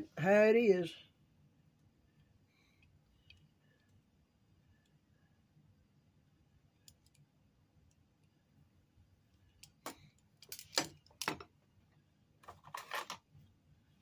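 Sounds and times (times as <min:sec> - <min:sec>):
metallic clicks and rattles: 0:09.6 - 0:11.5.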